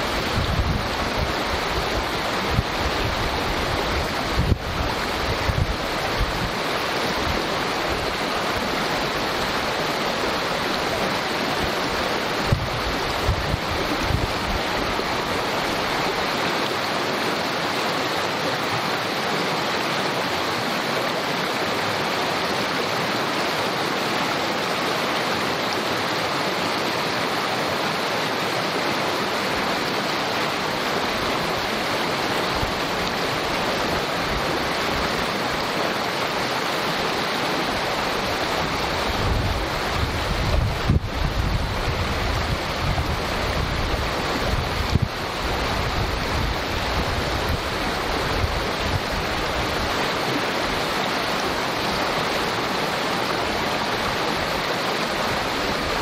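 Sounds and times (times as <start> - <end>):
wind buffeting microphone: 0.0 - 6.6, 12.4 - 15.0, 38.8 - 50.0
creek rushing and babbling: 0.0 - 56.0.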